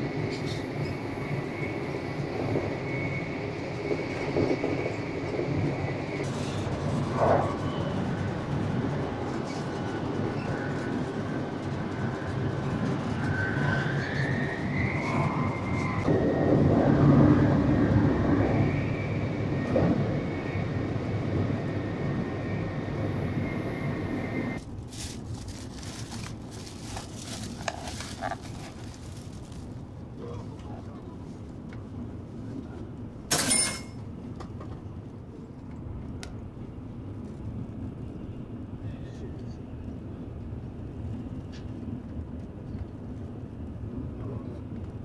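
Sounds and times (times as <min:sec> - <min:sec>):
high train whine: 0:00.0 - 0:45.0
train rumble: 0:00.0 - 0:45.0
plastic bag crinkling: 0:24.8 - 0:29.8.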